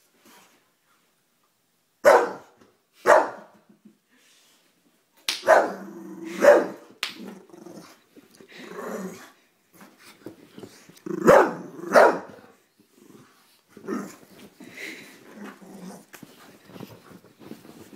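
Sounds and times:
dog barking: 0:02.0 - 0:03.5, 0:05.4 - 0:05.8, 0:06.4 - 0:06.8, 0:11.3 - 0:12.4
dog growling: 0:05.7 - 0:06.4, 0:07.2 - 0:09.4, 0:11.0 - 0:12.0, 0:13.0 - 0:14.3.

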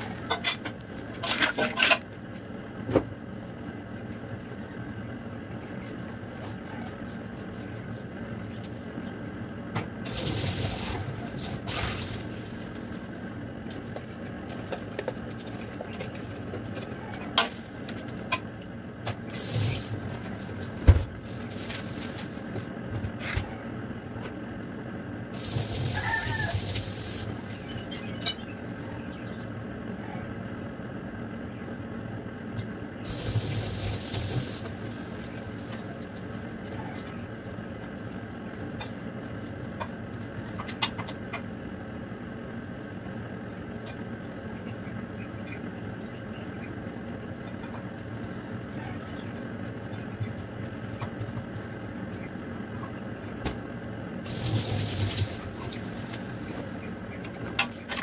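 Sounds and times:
broth simmering with bubbling hiss: 0:25.3 - 0:27.6, 0:33.0 - 0:35.7, 0:54.2 - 0:56.7.

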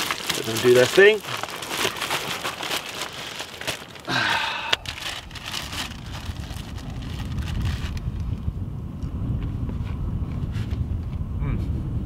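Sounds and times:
plastic bag crinkling: 0:00.0 - 0:08.0
wind rumble on microphone: 0:04.8 - 0:12.0.

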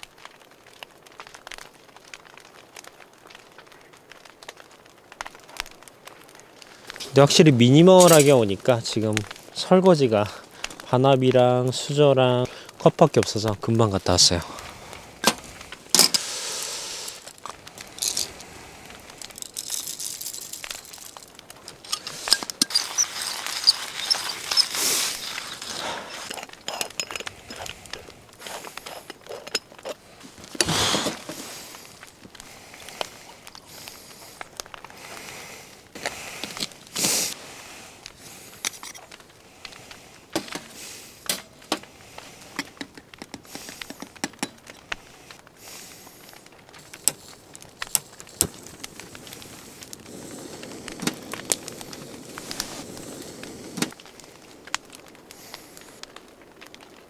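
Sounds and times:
camping gear clinking: 0:07.8 - 0:08.5, 0:15.2 - 0:16.2, 0:17.4 - 0:18.4, 0:19.1 - 0:31.4.

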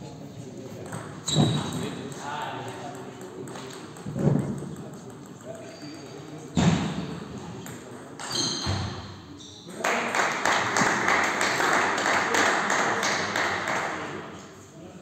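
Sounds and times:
table tennis ball bouncing: 0:00.7 - 0:05.7
spectators clapping: 0:09.8 - 0:14.2.

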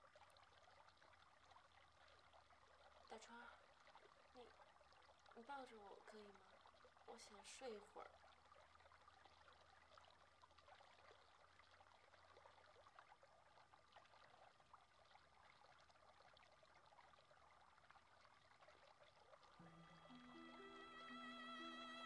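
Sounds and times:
faint background hiss with crackle: 0:00.0 - 0:22.0
soft music: 0:19.5 - 0:22.0.

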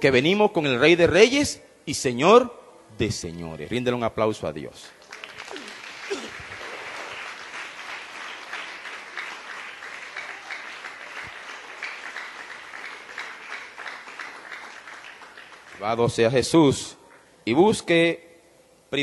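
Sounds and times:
crowd applauding: 0:05.0 - 0:16.2.

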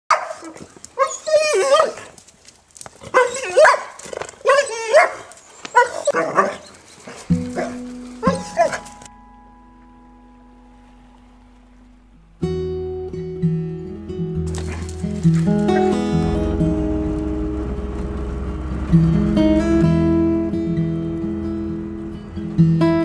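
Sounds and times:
dog barking: 0:00.1 - 0:02.1, 0:03.1 - 0:06.6, 0:07.5 - 0:08.9
acoustic guitar strummed chords: 0:07.3 - 0:23.0.

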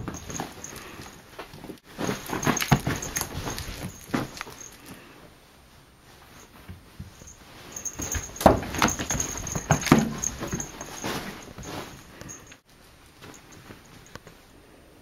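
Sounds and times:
kitten thumping and rustling: 0:00.0 - 0:05.0, 0:06.2 - 0:12.6.

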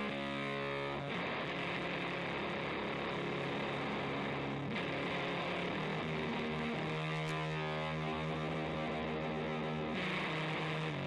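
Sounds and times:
fuzz electric guitar: 0:00.0 - 0:11.0.

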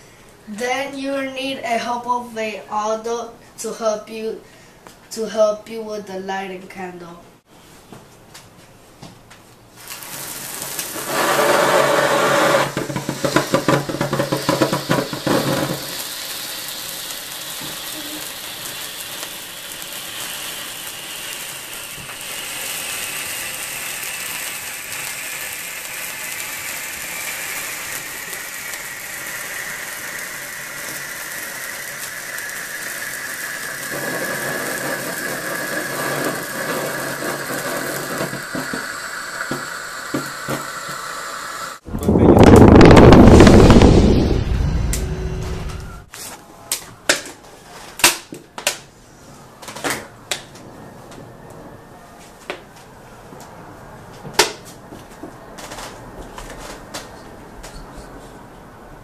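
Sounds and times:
sparkler crackling and fizzing: 0:09.8 - 0:44.0.

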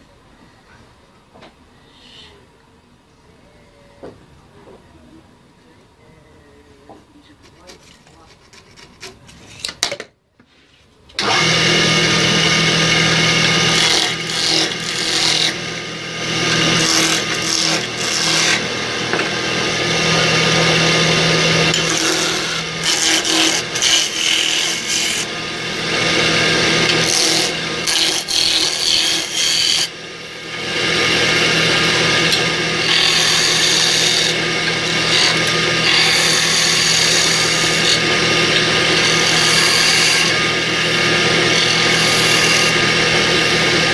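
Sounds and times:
gouge scraping wood: 0:07.4 - 0:09.6
lathe motor hum: 0:11.2 - 0:43.9.

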